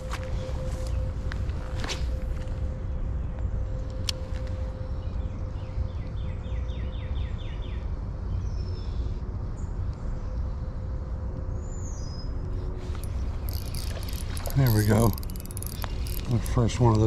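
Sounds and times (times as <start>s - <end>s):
low outdoor rumble: 0.0s - 17.0s
songbird chirping: 11.6s - 17.0s.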